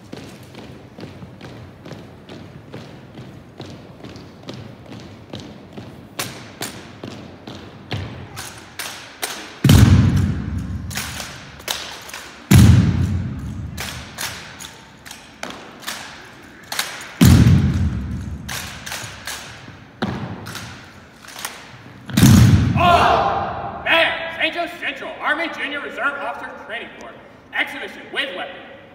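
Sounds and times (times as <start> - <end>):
rifles tapping and clacking: 6.0 - 7.6, 8.3 - 22.2.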